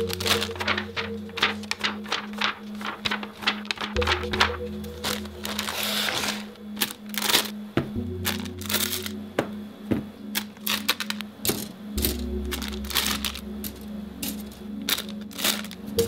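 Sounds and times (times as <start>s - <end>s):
plastic bag crinkling: 0.0s - 7.6s, 8.2s - 9.2s, 10.3s - 16.0s
soft background music: 0.0s - 16.0s
scissors snipping plastic bags: 5.0s - 7.6s, 10.3s - 15.9s.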